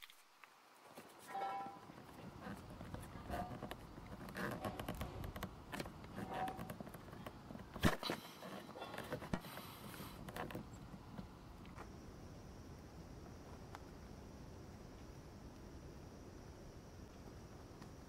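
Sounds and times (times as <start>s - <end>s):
plastic squeaks: 2.4s - 9.4s
plastic lamp cover scraping and clicking: 2.4s - 9.5s.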